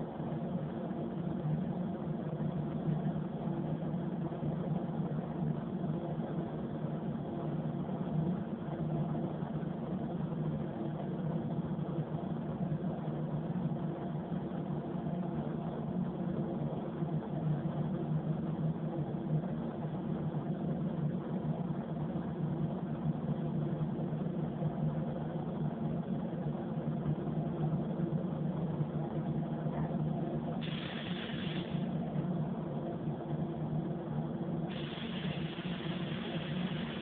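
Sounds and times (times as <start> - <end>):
ventilation hum: 0.0 - 37.0
spray gun air hiss: 30.6 - 32.0, 34.7 - 37.0.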